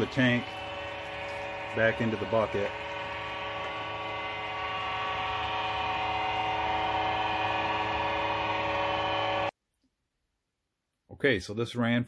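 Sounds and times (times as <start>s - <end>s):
submersible pump humming: 0.0s - 9.5s
water pouring into bucket: 0.0s - 9.5s.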